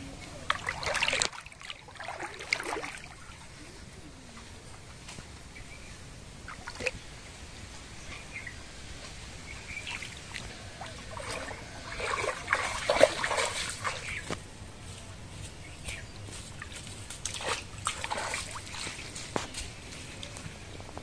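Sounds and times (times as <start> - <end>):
water splashing as person wades: 0.5 - 3.5, 9.8 - 14.3, 16.6 - 19.3.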